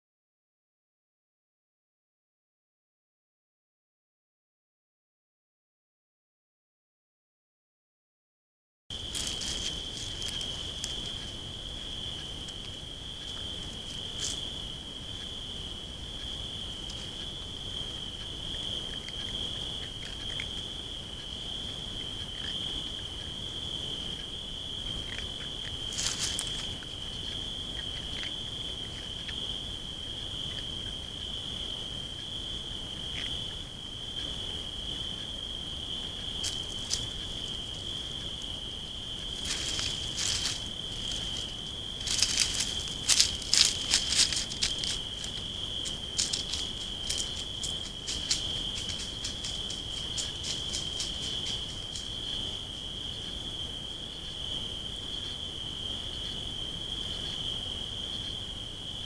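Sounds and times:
cricket trilling: 8.9s - 59.0s
animal rustling dry leaves: 9.0s - 14.7s, 25.0s - 28.4s, 36.4s - 38.0s, 39.2s - 52.3s.

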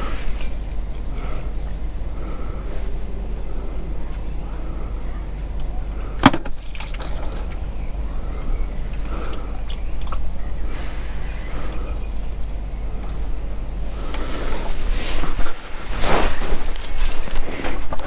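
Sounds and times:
oil draining into a pan: 6.5s - 7.4s.

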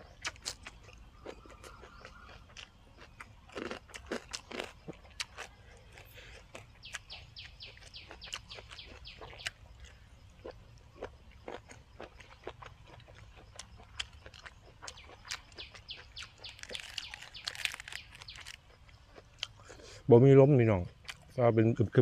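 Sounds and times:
chewing and wet mouth noises: 0.0s - 20.0s, 20.8s - 21.4s.

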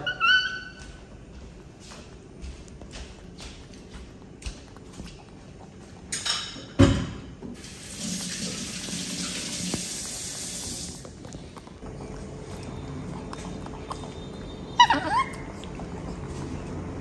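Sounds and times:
kitchen tap running: 7.5s - 11.0s.

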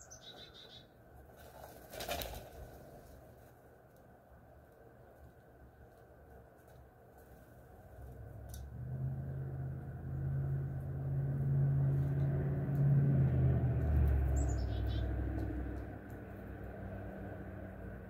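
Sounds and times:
small bird chirping: 0.0s - 1.0s, 14.2s - 15.5s
low rumble of passing vehicle: 0.0s - 18.0s.

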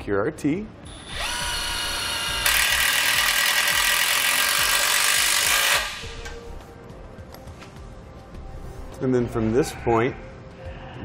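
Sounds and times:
impact driver driving screw: 1.1s - 6.3s.

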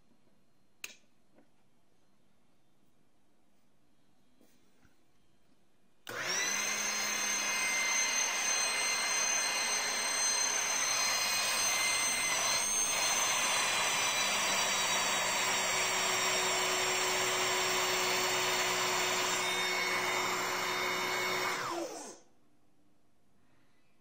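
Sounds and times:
hydraulic pump whining: 6.1s - 22.2s
motor winding down: 6.1s - 22.2s.

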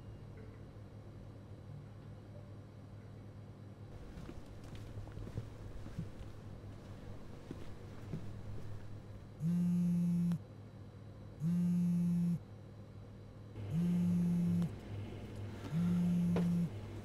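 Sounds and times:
faint steady hum: 0.0s - 17.0s
phone vibrating: 9.4s - 10.4s, 11.4s - 12.4s, 13.6s - 14.8s, 15.6s - 16.8s.

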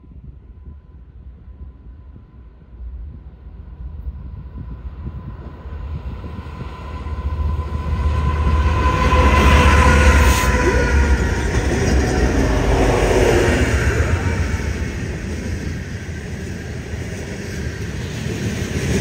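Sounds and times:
diesel locomotive engine rumble: 0.0s - 19.0s
train wheels on rails: 0.6s - 19.0s.

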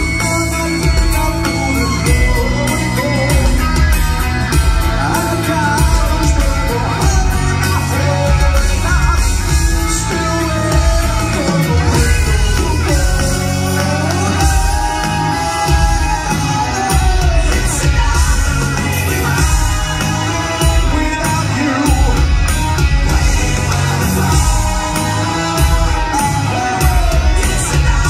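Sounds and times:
bass guitar: 0.0s - 28.0s
drums: 0.0s - 28.0s
electric guitars: 0.0s - 28.0s
man singing: 0.0s - 28.0s.

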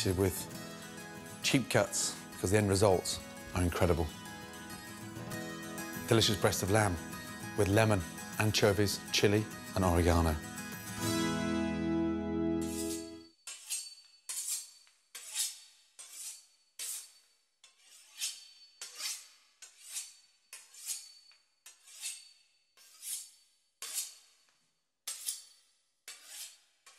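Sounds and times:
knife sawing through crisp pastry: 12.7s - 24.5s, 25.1s - 26.9s.

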